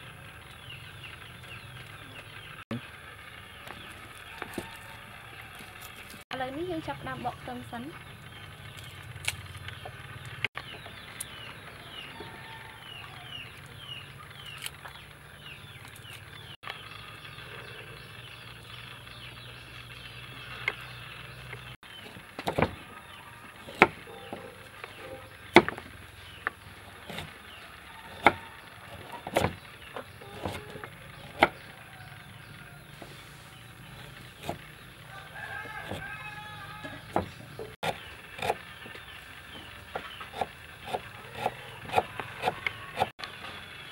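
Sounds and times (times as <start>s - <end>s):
bird chirping: 6.5s - 43.1s
knife chopping on wooden board: 29.0s - 29.6s, 30.3s - 31.6s, 40.0s - 43.1s.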